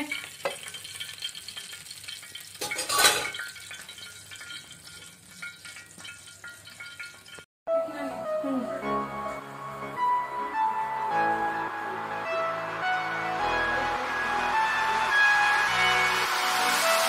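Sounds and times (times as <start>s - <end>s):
oil sizzling on a hot pan: 0.0s - 7.5s, 12.6s - 17.0s
string music: 7.7s - 17.0s.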